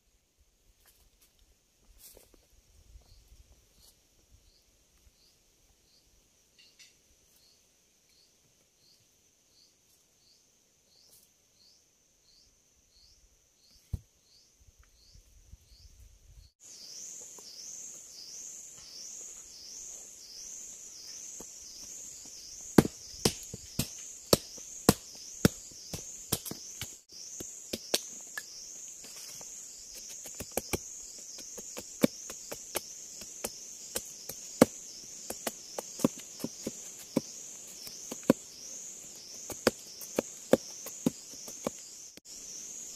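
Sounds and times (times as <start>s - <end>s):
insect chirping: 2.1s - 42.9s
machete striking wood: 22.8s - 27.0s.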